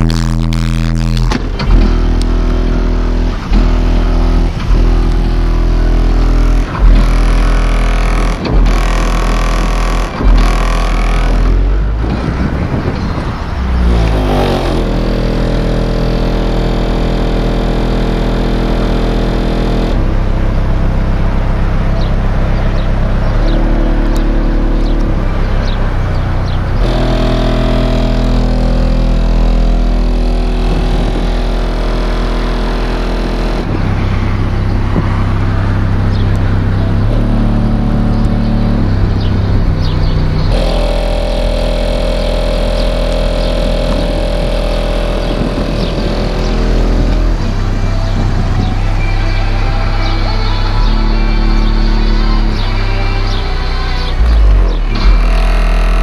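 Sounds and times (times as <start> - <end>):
bass-heavy music from car: 0.0 - 56.0.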